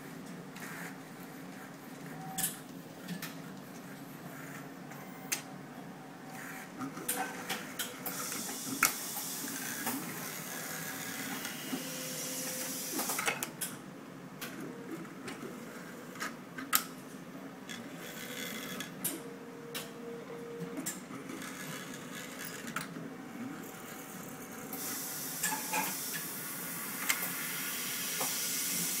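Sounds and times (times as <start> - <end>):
printer mechanical hum: 0.0 - 29.0
high hissing whir: 24.7 - 29.0.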